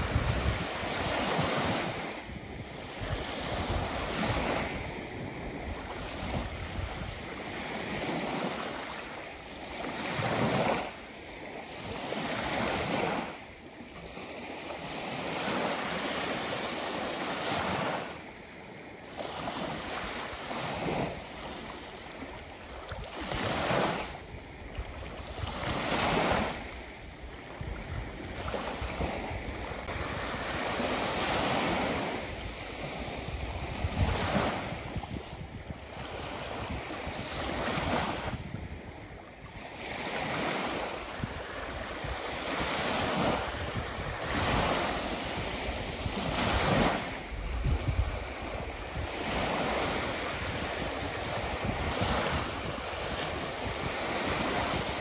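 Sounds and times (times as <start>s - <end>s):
ocean surf breaking: 0.0s - 38.8s.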